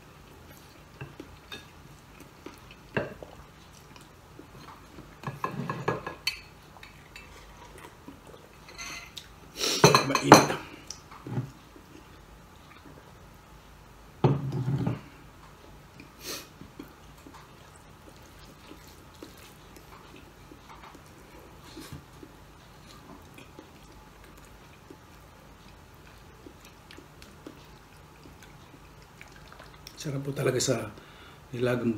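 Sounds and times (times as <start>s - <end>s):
cutlery clinking on ceramic plate: 9.8s - 10.6s.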